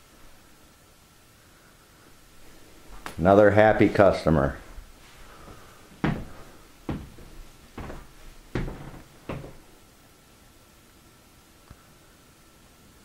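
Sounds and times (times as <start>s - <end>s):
faint high hum: 0.0s - 13.0s.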